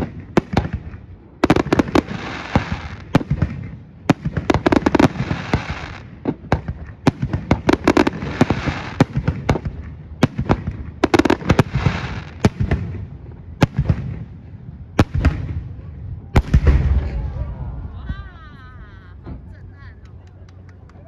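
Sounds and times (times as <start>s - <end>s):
fireworks bangs: 0.0s - 18.6s
fireworks crackling hiss: 1.4s - 3.3s, 4.1s - 6.2s, 6.8s - 10.4s, 11.0s - 12.6s.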